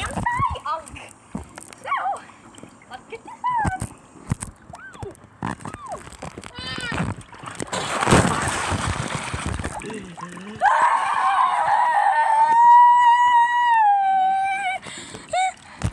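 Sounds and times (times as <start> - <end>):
water splashing: 1.4 - 11.9
boy screaming: 10.6 - 14.8.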